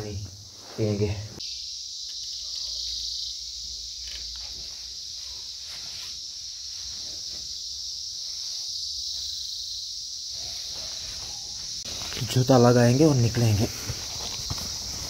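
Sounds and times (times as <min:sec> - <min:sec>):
insects shrill drone: 0:00.0 - 0:15.0
faint rustles: 0:04.0 - 0:07.6.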